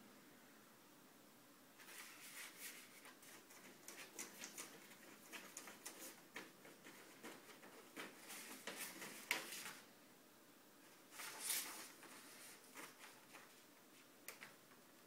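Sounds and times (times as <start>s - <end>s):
paper rustling and crackling: 1.8s - 9.9s, 11.1s - 14.7s.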